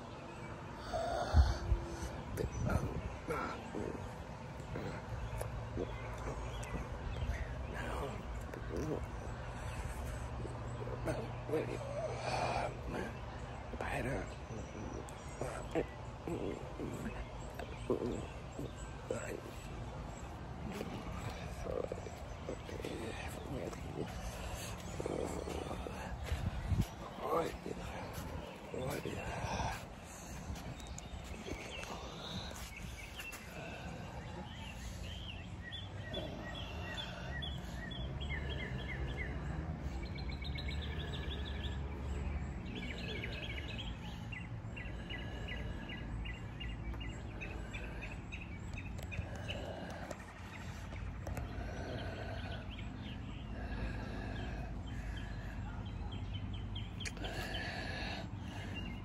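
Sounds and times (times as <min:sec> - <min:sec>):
steady low rumble: 0:00.0 - 0:41.6
songbirds chirping: 0:00.0 - 0:59.0.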